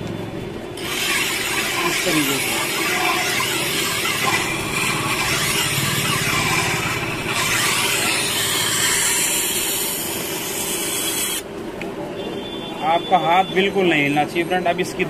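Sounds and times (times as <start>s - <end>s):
blade grinding on sharpening wheel: 0.8s - 11.4s.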